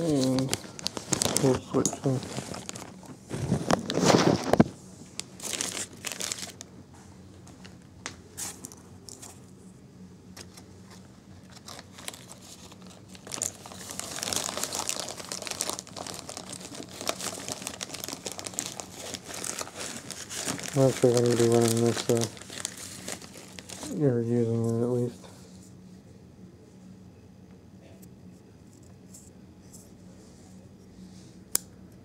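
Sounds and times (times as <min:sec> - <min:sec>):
plastic bags crinkling: 0:00.0 - 0:06.7, 0:10.4 - 0:24.3
rustle among packing peanuts: 0:00.0 - 0:06.7, 0:10.5 - 0:25.2.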